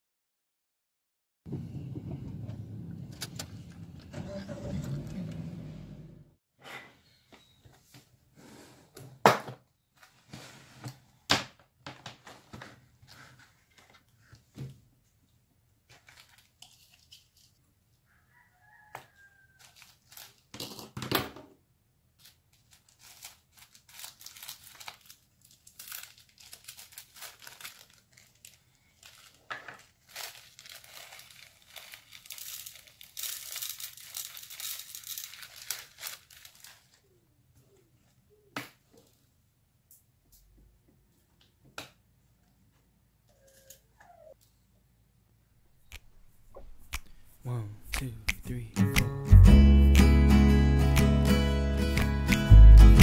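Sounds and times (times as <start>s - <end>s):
plastic bags crinkling: 15.9s - 17.3s, 19.6s - 20.8s, 22.2s - 37.0s.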